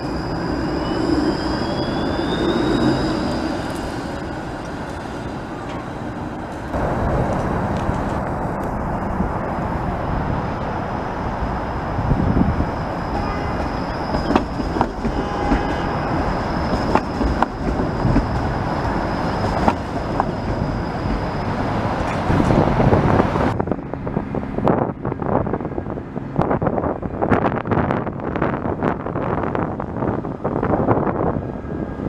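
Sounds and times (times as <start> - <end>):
high whine: 0.0 - 23.8
streetcar rolling past: 0.0 - 32.0
wheels clicking over rail joints: 3.5 - 9.0, 13.5 - 23.6.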